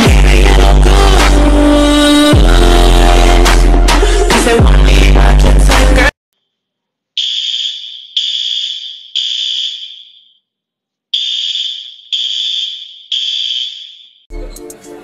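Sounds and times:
loud music: 0.0s - 6.1s
fire alarm beeping: 7.2s - 10.4s, 11.2s - 14.3s.

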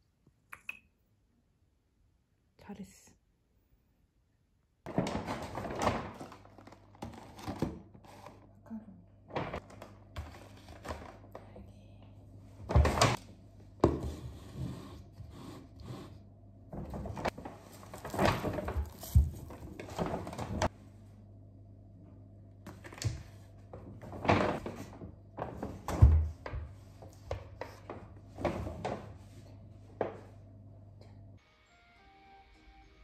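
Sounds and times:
faint low hum: 6.6s - 31.4s.

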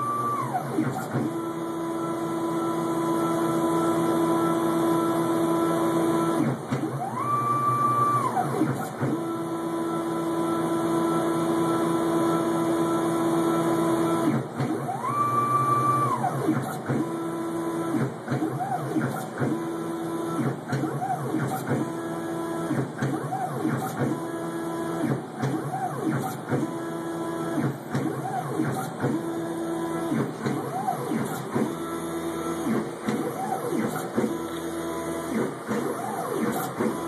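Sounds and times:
stepper motors whining: 25.6s - 37.0s.

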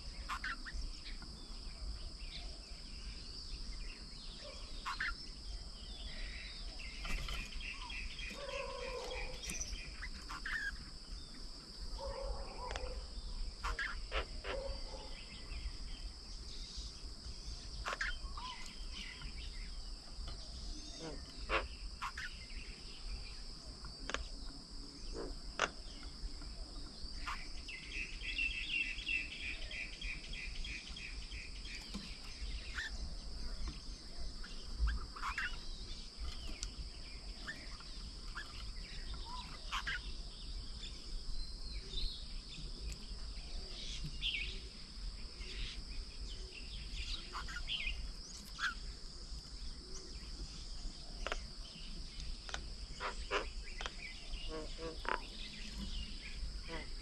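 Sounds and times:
rapid bird trill: 0.0s - 1.2s, 4.4s - 5.4s, 6.1s - 11.1s, 12.0s - 15.4s, 17.6s - 19.3s, 20.7s - 22.8s, 27.2s - 36.6s, 37.2s - 40.2s, 46.8s - 48.9s
bird chirps and calls: 0.0s - 1.6s, 3.8s - 11.4s, 12.0s - 23.3s, 27.2s - 41.1s, 46.4s - 48.9s, 51.2s - 57.0s.

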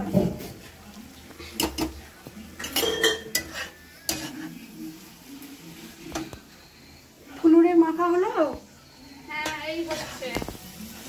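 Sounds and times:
metal utensils clinking on dishes: 1.4s - 4.6s.

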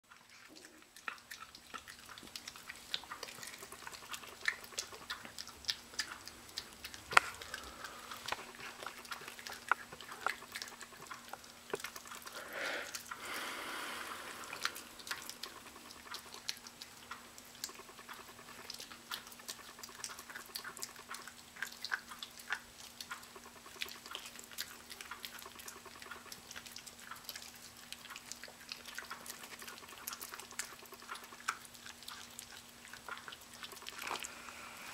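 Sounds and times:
faint steady hum: 0.1s - 34.9s
puppy chewing wet clicks: 0.1s - 34.9s.

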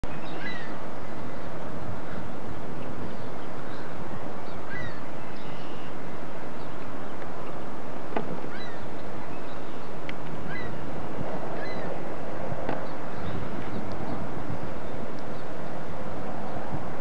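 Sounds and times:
high falling bird calls: 0.0s - 2.4s, 3.1s - 11.0s, 11.6s - 12.0s
wind on microphone: 0.0s - 17.0s.

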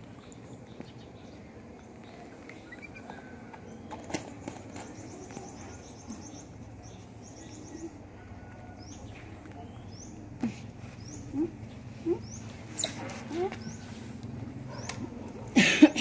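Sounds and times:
bird chirps and trills: 8.8s - 15.2s.

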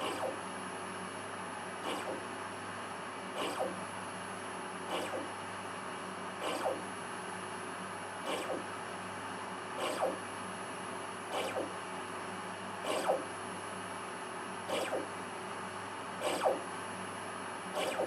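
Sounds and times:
servo motor whines: 0.0s - 0.4s, 1.8s - 2.2s, 3.4s - 3.8s, 4.9s - 5.3s, 6.4s - 6.8s, 8.2s - 8.7s, 9.8s - 10.2s, 11.3s - 11.7s, 12.8s - 13.3s, 14.7s - 15.1s, 16.2s - 16.7s, 17.7s - 18.0s
steady motor hum: 0.0s - 18.0s.

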